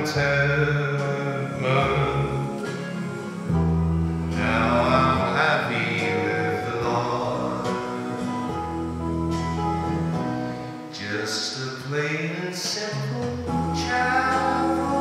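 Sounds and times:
man singing: 0:00.0 - 0:03.6, 0:04.3 - 0:08.6, 0:10.9 - 0:15.0
low sustained bass notes: 0:00.0 - 0:10.6, 0:13.0 - 0:15.0
guitar: 0:00.0 - 0:15.0.

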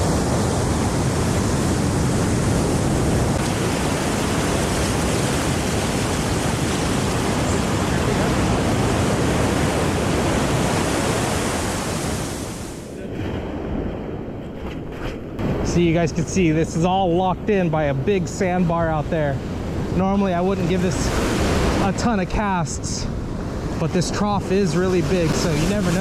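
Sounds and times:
ocean surf washing in: 0:00.0 - 0:26.0
wind buffeting microphone: 0:00.0 - 0:26.0.

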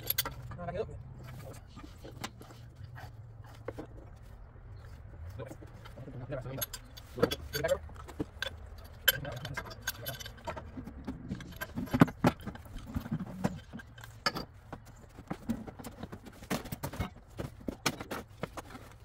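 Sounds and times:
pipe wrenches clinking on metal pipe: 0:00.0 - 0:02.6, 0:05.7 - 0:14.6.

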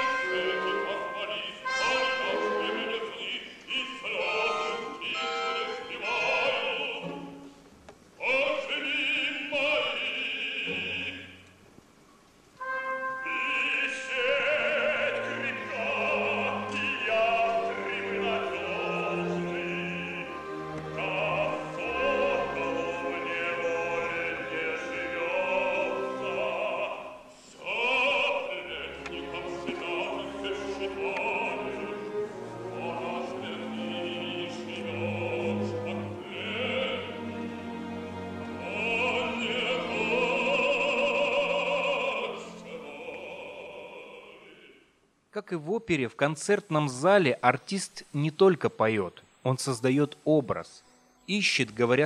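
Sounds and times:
man singing opera: 0:00.0 - 0:07.5, 0:08.2 - 0:11.4, 0:12.6 - 0:44.9
orchestra playing: 0:00.0 - 0:07.6, 0:12.6 - 0:44.7.

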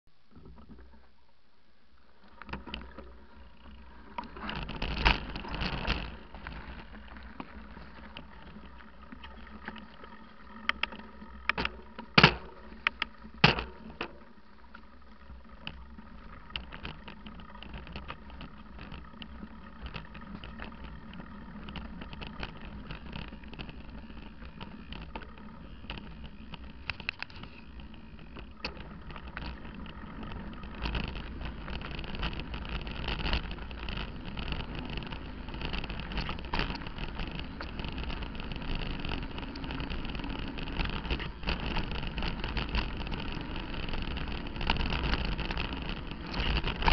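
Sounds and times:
bike tyres rolling and rattling: 0:00.2 - 0:46.9.

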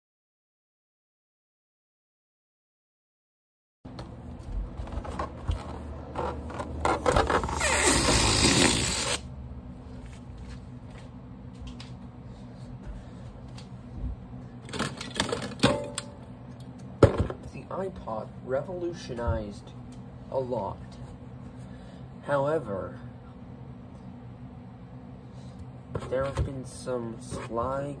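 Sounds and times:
loud noisy rustle: 0:07.0 - 0:09.3.

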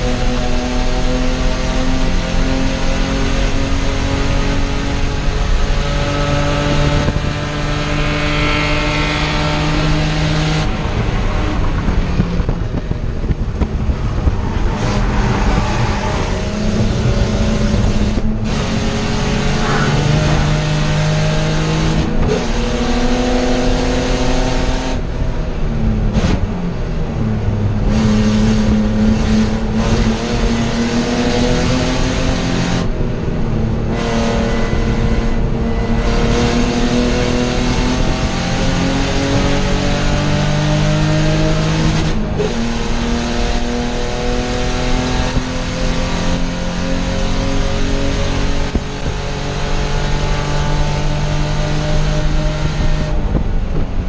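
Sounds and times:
race car engine revving: 0:00.0 - 0:54.0.

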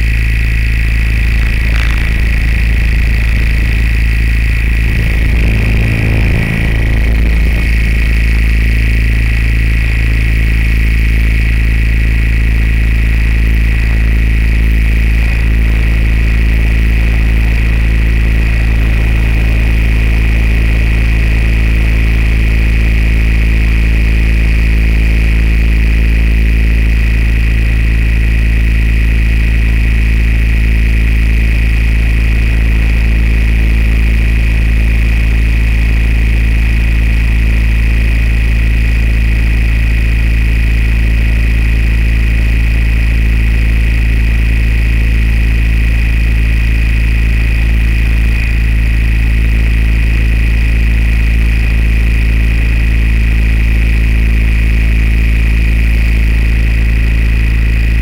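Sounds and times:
drone motors and propellers humming: 0:00.0 - 0:12.2
brief rumble: 0:00.8 - 0:10.4.

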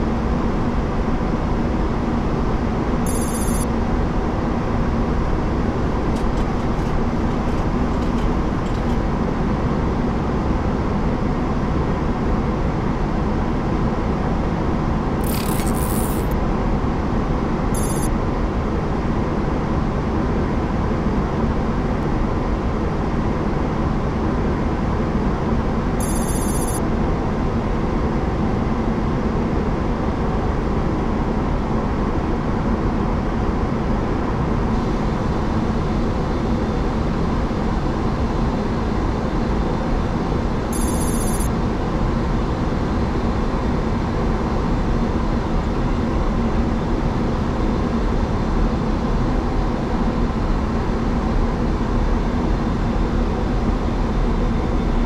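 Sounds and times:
airflow and engine rush: 0:00.0 - 0:55.0
high-pitched ringing chirps: 0:03.1 - 0:03.7, 0:15.2 - 0:16.4, 0:17.8 - 0:18.1, 0:26.0 - 0:26.8, 0:40.8 - 0:41.5.

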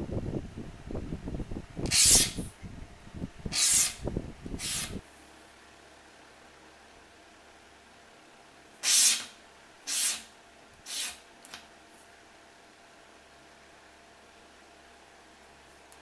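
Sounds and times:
pencil scratching along straightedge: 0:03.5 - 0:04.0, 0:04.6 - 0:05.0, 0:08.8 - 0:09.3, 0:09.9 - 0:10.3, 0:10.9 - 0:11.2.

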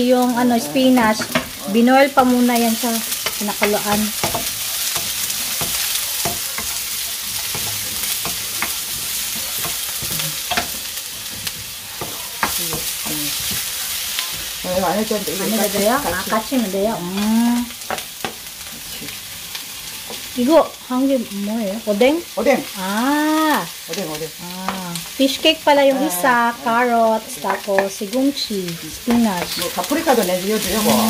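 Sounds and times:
person's voice: 0:00.0 - 0:04.1, 0:25.6 - 0:31.0
vegetables sizzling in a wok: 0:00.0 - 0:31.0
spatula clicking against pan: 0:03.2 - 0:10.8.

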